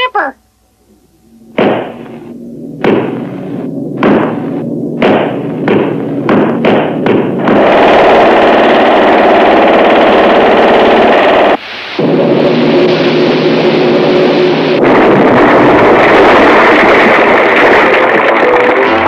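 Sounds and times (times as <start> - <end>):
heavy hammer striking: 1.4 - 8.2.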